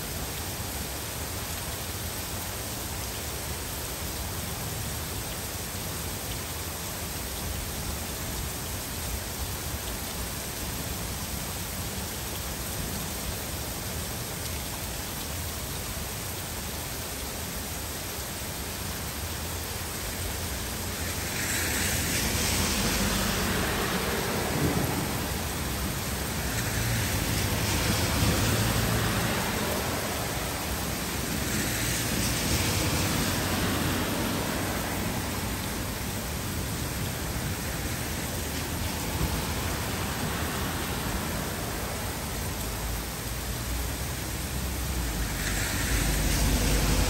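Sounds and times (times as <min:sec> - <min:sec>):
heavy rain pouring: 0:00.0 - 0:47.0
thunder rumbling: 0:23.5 - 0:26.2.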